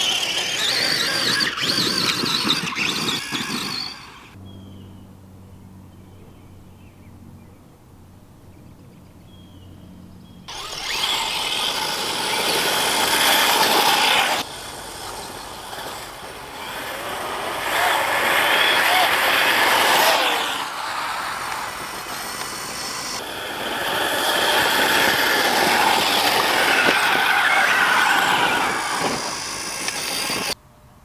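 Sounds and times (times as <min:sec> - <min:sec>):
rc car electric motor whining: 0:00.0 - 0:04.4, 0:10.5 - 0:30.6.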